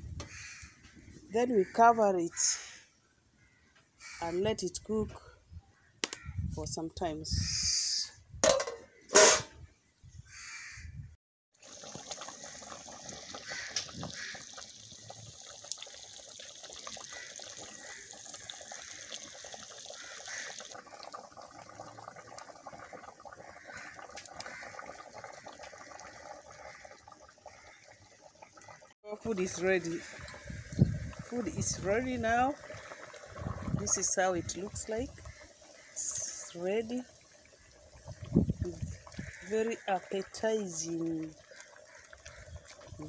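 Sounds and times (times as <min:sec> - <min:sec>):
metal lid clanking onto pot: 0:08.4 - 0:09.5
soup bubbling at the boil: 0:11.5 - 0:43.0.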